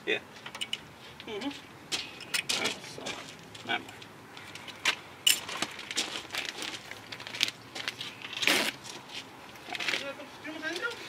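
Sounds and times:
tools and metal parts clinking: 0:00.4 - 0:00.8, 0:02.0 - 0:02.8, 0:03.9 - 0:06.7.

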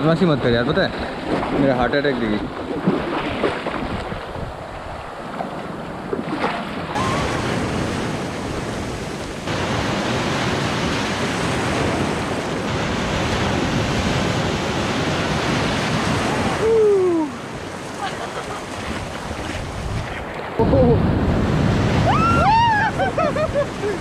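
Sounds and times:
ocean surf rushing: 0:04.4 - 0:24.0
short falling cry: 0:07.0 - 0:07.4, 0:22.0 - 0:23.0.

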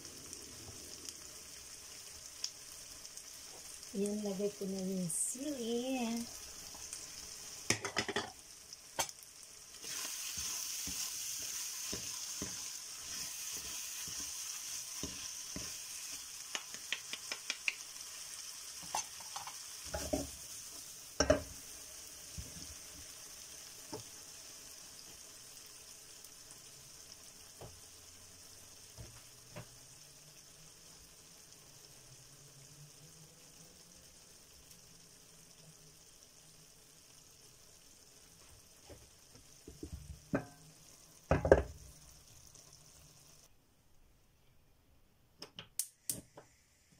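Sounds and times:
meat sizzling in a pan: 0:00.0 - 0:43.5
wooden spoon scraping a pan: 0:09.8 - 0:15.9.

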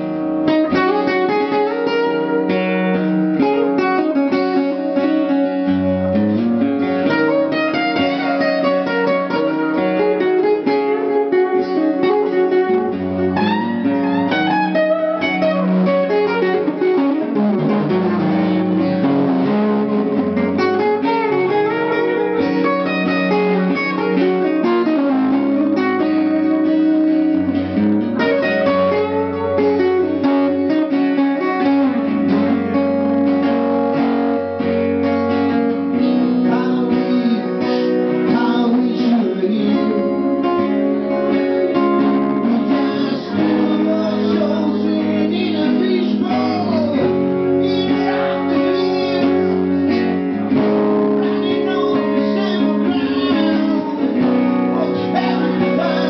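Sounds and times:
acoustic guitars strumming: 0:00.0 - 0:56.0
harmonica bending notes: 0:00.4 - 0:34.1.

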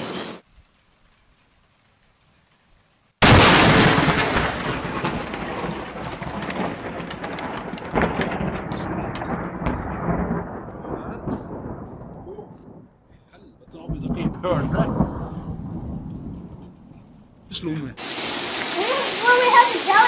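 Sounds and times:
loud thunderclap: 0:03.2 - 0:17.6
rolling thunder rumble: 0:03.2 - 0:17.7.

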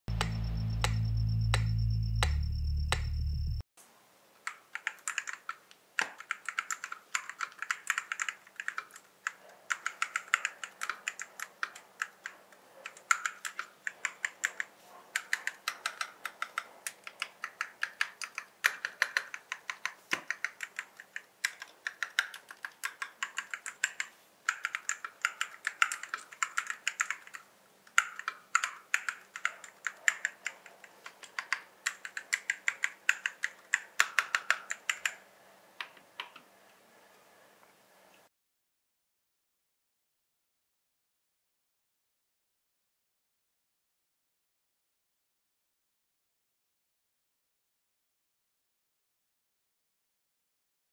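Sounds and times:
mechanical keyboard typing: 0:04.4 - 0:35.2.

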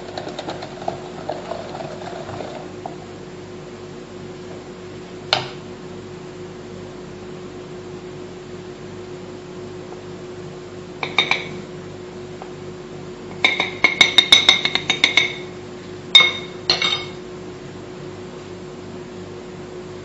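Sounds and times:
metal spoon clinking on bowl: 0:13.4 - 0:15.5, 0:16.2 - 0:17.2.

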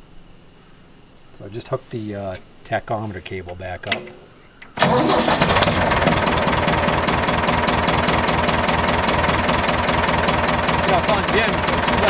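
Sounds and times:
tractor engine idling: 0:03.1 - 0:12.0.

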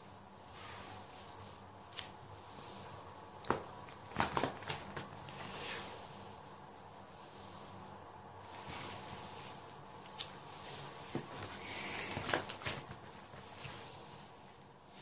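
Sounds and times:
plastic binder pages rustling: 0:03.4 - 0:05.5, 0:11.0 - 0:13.9.

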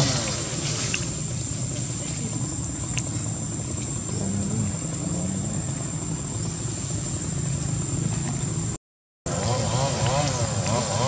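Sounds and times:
low outdoor rumble: 0:00.0 - 0:11.0.

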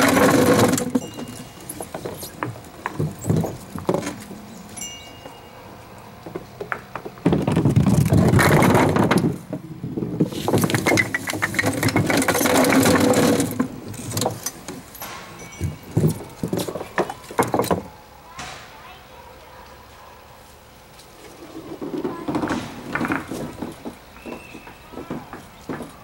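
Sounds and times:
wooden pins clattering: 0:00.0 - 0:04.4, 0:06.3 - 0:17.9, 0:21.6 - 0:26.0
lifting mechanism rattling: 0:10.4 - 0:18.0.

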